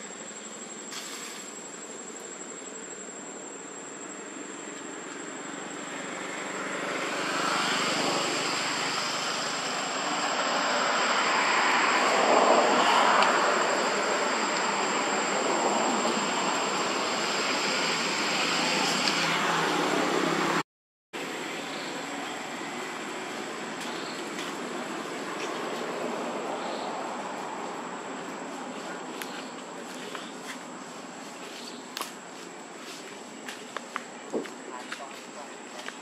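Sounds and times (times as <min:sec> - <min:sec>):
aircraft rushing drone overhead: 0:05.2 - 0:20.6.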